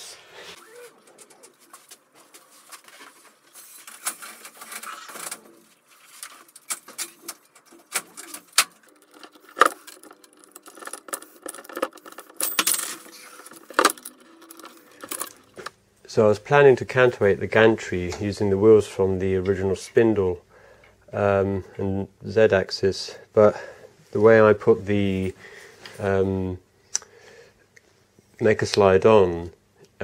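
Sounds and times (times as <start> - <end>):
metallic clicks and rattles: 6.3 - 15.7.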